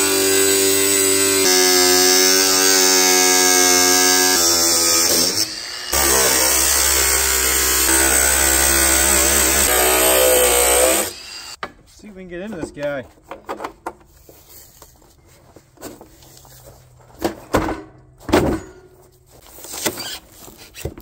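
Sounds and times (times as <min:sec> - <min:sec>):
angle grinder cutting sheet metal: 0:00.0 - 0:11.6.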